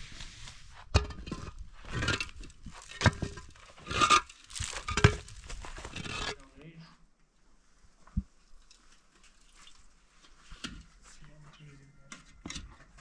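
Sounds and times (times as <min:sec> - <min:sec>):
gritty scraping: 0:00.0 - 0:06.9.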